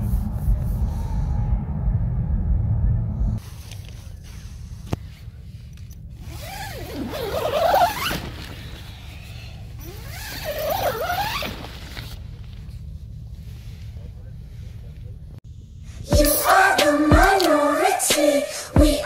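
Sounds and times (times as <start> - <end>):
tent zipper rasping: 6.2 - 12.2.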